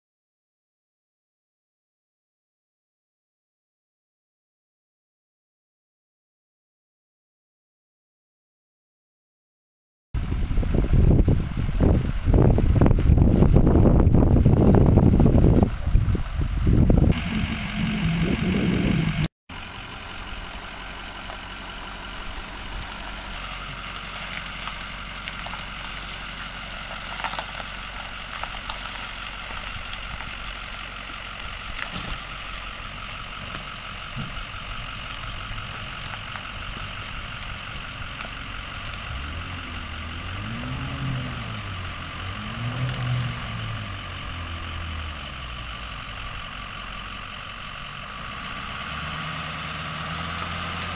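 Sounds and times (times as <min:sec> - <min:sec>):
wind on microphone: 0:10.2 - 0:19.3
truck engine idling: 0:10.2 - 0:50.9
outboard motor revving: 0:17.0 - 0:19.3, 0:39.0 - 0:45.9, 0:48.1 - 0:50.9.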